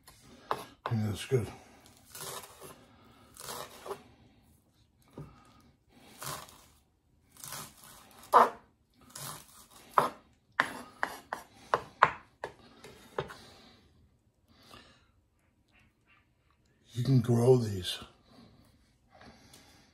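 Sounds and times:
knife chopping on wooden board: 9.2 - 13.4.

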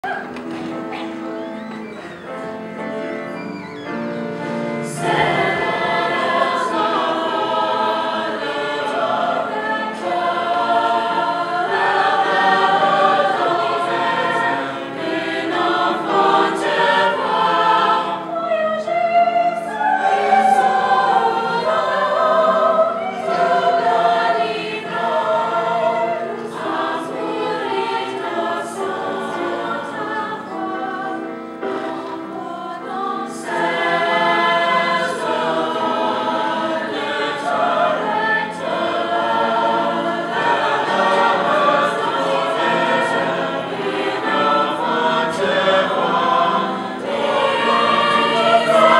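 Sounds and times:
mixed choir singing: 4.2 - 48.9.

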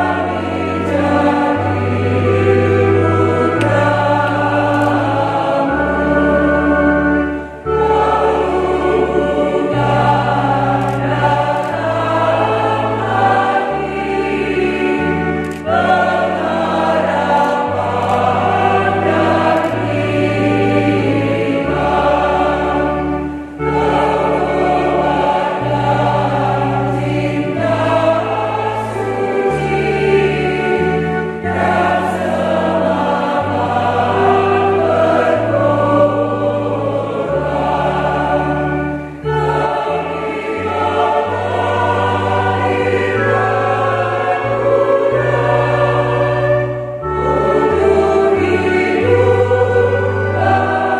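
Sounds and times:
choir singing a hymn: 0.0 - 50.9
electronic organ: 0.0 - 50.9.

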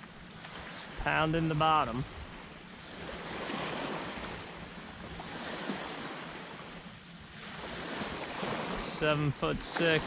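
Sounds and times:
small waves lapping: 0.0 - 10.0.

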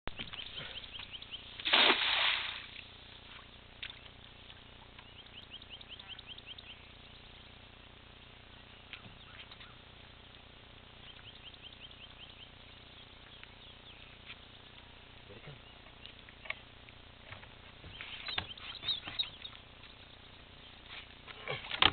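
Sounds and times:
net splashing into water: 1.6 - 2.8.

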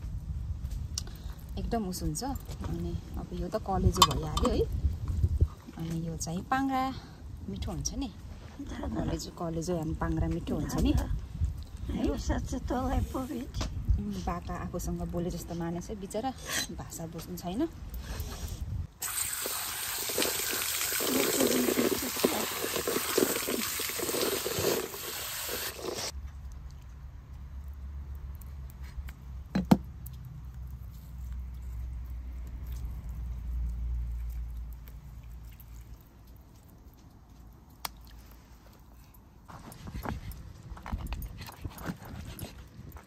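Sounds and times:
water splattering over meat: 19.0 - 26.7.

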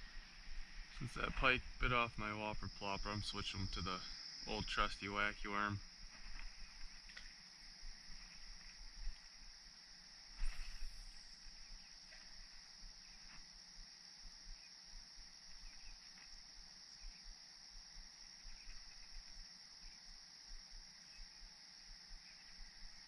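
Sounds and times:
insects chirping: 0.0 - 23.0
faint ticks: 5.5 - 23.0.

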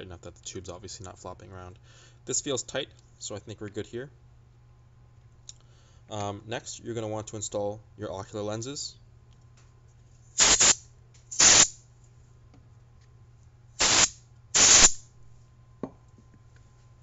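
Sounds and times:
hand air blower puffs: 10.4 - 11.8, 13.8 - 15.0.

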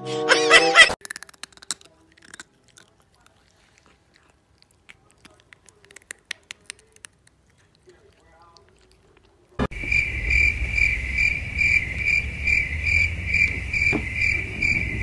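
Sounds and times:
cat chewing: 1.0 - 9.7
loud pitched sound: 9.6 - 15.0.

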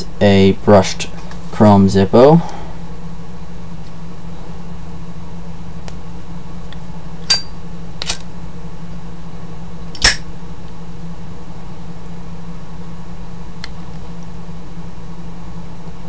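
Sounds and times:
lighter lid clinking open: 10.0 - 10.2.

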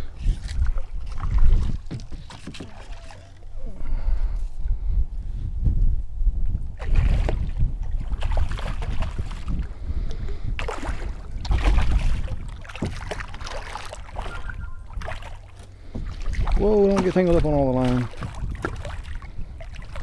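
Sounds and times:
wind rumble on microphone: 0.0 - 20.0
fish thrashing and splashing: 0.3 - 3.5, 6.8 - 9.7, 10.6 - 20.0.

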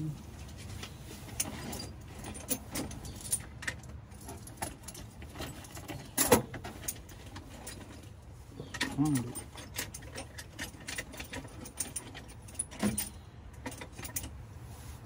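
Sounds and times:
metal socket tools clinking: 1.4 - 14.4.

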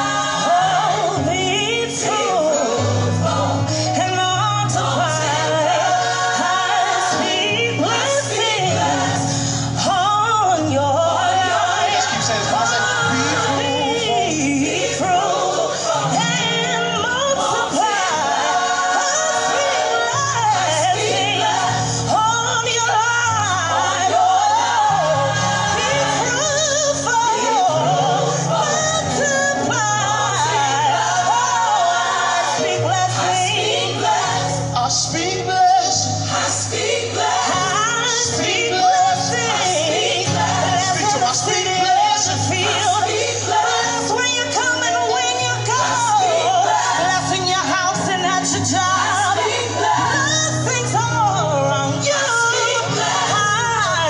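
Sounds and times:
voices singing gospel: 0.0 - 54.0.

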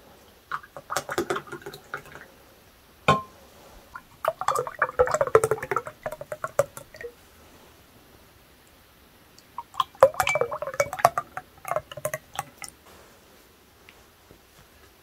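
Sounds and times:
liquid pouring into glasses: 0.5 - 2.3, 4.0 - 7.2, 9.6 - 12.7
glass clink: 3.1 - 3.4, 10.1 - 11.2.

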